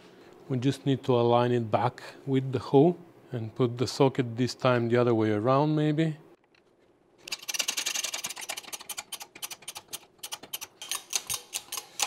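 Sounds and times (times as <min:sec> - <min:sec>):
rapid metallic clicking: 0:07.3 - 0:12.0.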